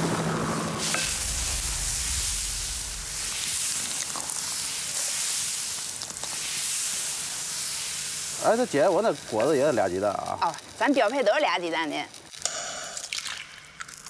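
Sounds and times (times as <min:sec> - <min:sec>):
batter sizzling on griddle: 0:00.0 - 0:13.1
low rumble: 0:01.0 - 0:03.8.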